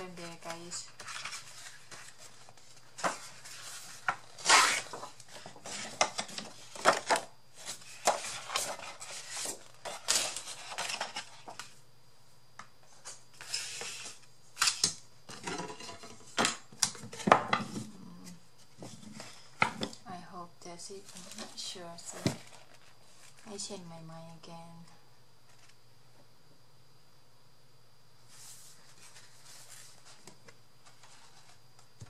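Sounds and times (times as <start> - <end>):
paper rustling and flapping: 0.0 - 11.8.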